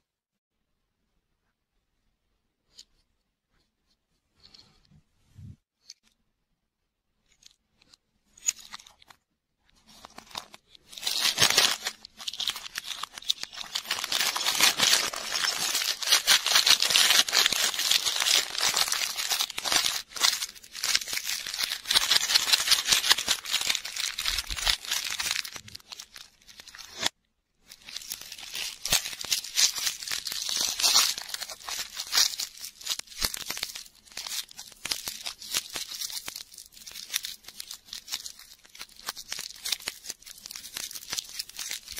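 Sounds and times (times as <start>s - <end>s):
plastic wrappers crinkling: 9.8s - 41.9s.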